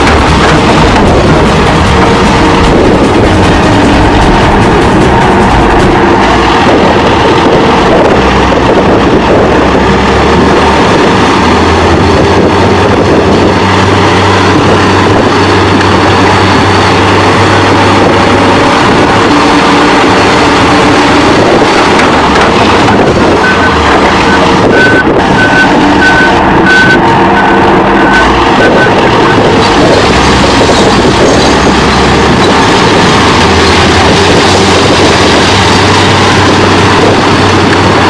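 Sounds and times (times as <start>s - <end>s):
excavator diesel engine: 0.0s - 38.0s
backup alarm beeping: 23.4s - 29.4s.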